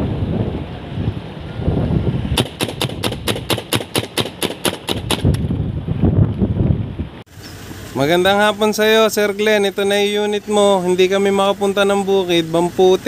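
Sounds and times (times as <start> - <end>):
wind rumble on microphone: 0.0 - 7.8
air rifle rapid shots: 2.4 - 5.4.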